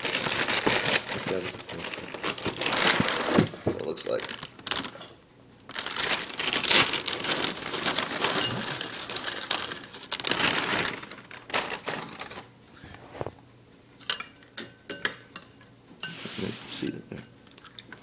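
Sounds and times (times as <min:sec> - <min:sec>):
plastic bag crinkling: 0:00.0 - 0:05.1, 0:05.7 - 0:12.5.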